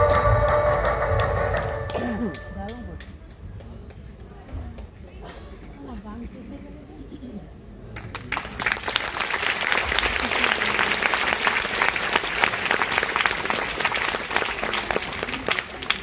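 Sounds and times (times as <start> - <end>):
audience applauding: 8.0 - 16.0.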